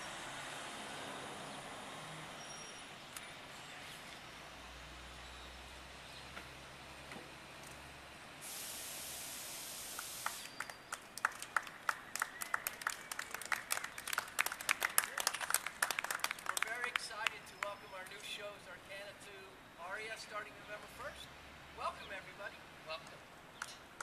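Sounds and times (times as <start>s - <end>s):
street traffic hum: 0.0s - 24.0s
loud hiss: 8.4s - 10.6s
people clapping: 10.0s - 17.7s.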